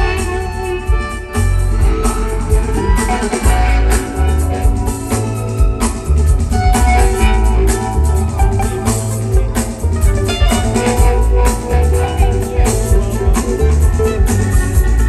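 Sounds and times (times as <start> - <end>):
heavy bass line: 0.0 - 15.0
live band playing: 0.0 - 15.0
steady drum beat: 0.0 - 15.0.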